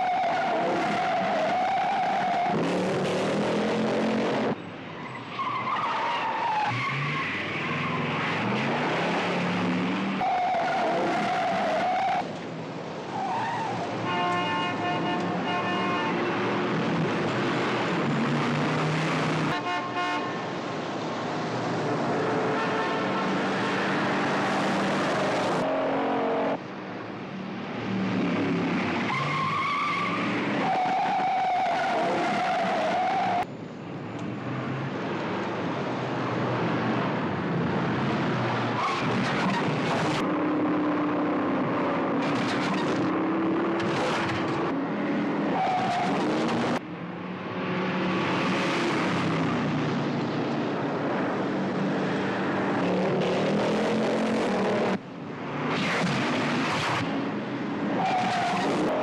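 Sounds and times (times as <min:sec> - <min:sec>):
tires squealing: 0:00.0 - 0:02.9, 0:04.9 - 0:09.3, 0:10.0 - 0:12.3, 0:13.1 - 0:13.9, 0:29.0 - 0:33.5, 0:38.7 - 0:40.2, 0:45.5 - 0:46.8, 0:57.9 - 0:59.0
car engines revving hard: 0:00.0 - 0:04.6, 0:06.6 - 0:12.3, 0:16.1 - 0:19.6, 0:20.7 - 0:26.6, 0:34.6 - 0:59.0
car horn blaring: 0:14.0 - 0:16.5, 0:19.5 - 0:20.4, 0:22.5 - 0:23.3.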